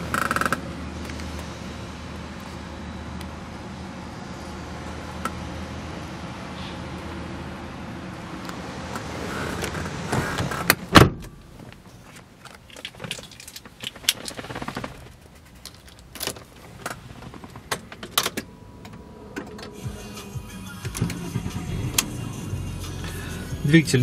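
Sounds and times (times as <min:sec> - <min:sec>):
car keys jangling: 0:12.0 - 0:18.5.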